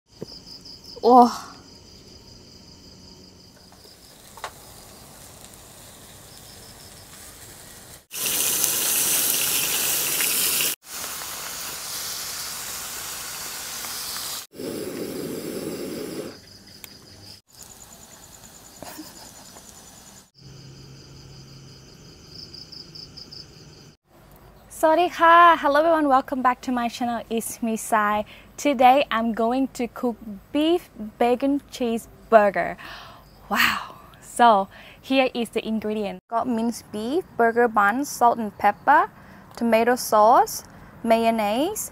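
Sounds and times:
crickets trilling: 0.1s - 10.7s, 13.4s - 24.0s
meat sizzling on a grill pan: 4.1s - 14.5s.

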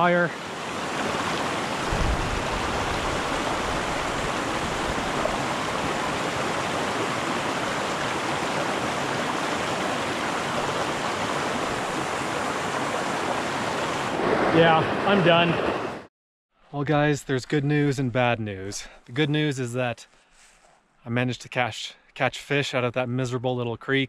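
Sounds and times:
creek running over rocks: 0.0s - 15.5s.

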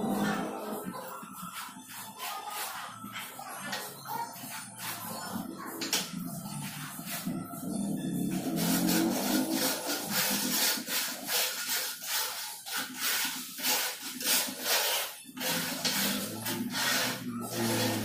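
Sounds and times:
hand tool scraping hard surface: 8.1s - 18.0s.

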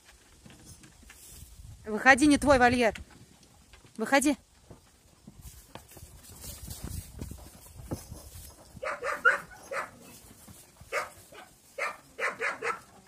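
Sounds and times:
dog barking: 8.8s - 10.0s, 10.9s - 13.0s.

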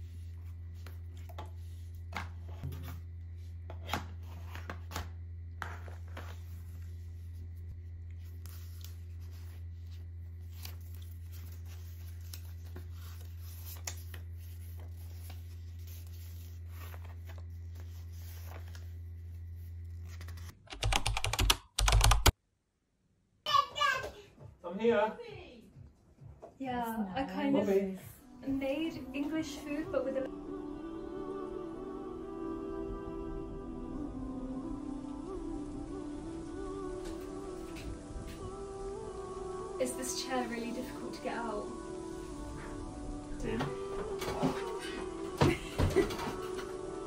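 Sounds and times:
steady low hum: 0.0s - 20.5s, 25.4s - 47.0s
cardboard box and paper rustling: 8.2s - 20.5s.

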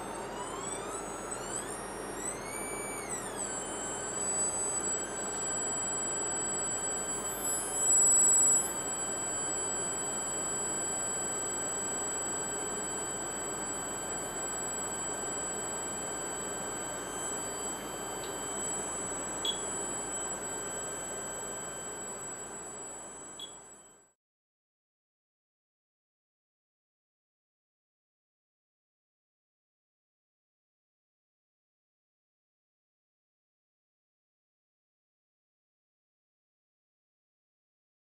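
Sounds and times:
high-pitched electrical whine: 0.0s - 24.0s.

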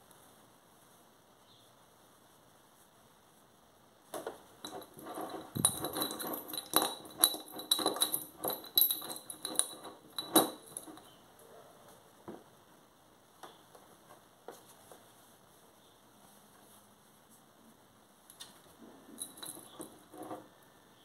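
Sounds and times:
metal clinking against glass jar: 4.6s - 11.1s, 19.1s - 20.5s.

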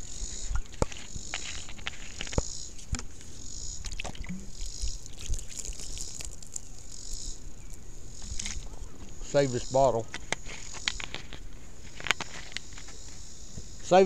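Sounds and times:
insects calling: 0.0s - 14.0s
water splashing and dripping: 3.8s - 6.9s.

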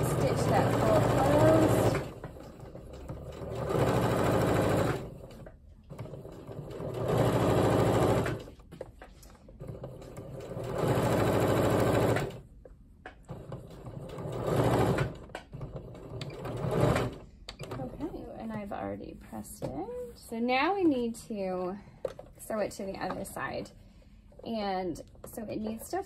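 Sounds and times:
sewing machine stitching: 0.0s - 8.6s, 9.4s - 12.4s, 13.2s - 18.2s.

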